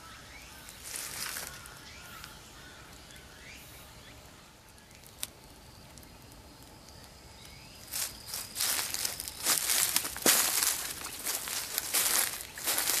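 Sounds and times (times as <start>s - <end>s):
faint bird chirps: 0.0s - 13.0s
footsteps on dry leaves: 0.7s - 1.8s, 7.8s - 13.0s.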